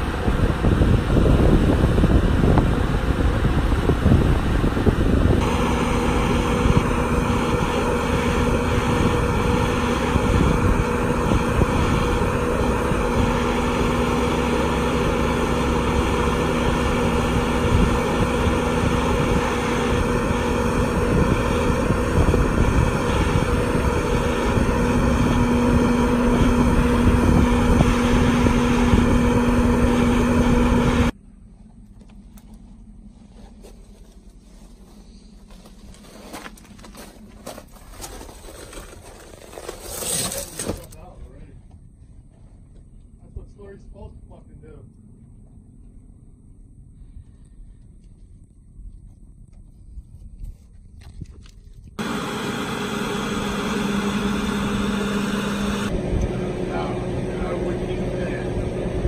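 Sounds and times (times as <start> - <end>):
wind buffeting microphone: 0.0 - 31.2
diesel engine humming: 0.0 - 47.8, 52.0 - 59.0.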